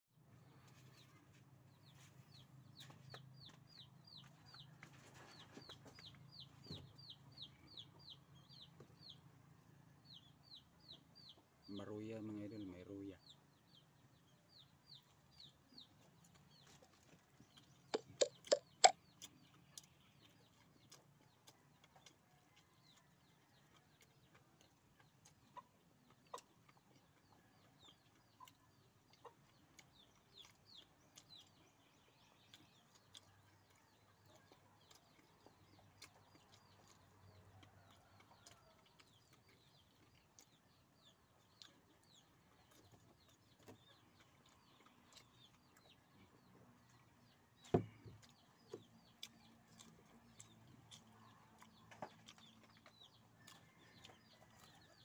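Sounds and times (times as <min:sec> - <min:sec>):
chickens clucking: 0:15.0 - 0:31.6
faint high chirps: 0:17.9 - 0:19.0.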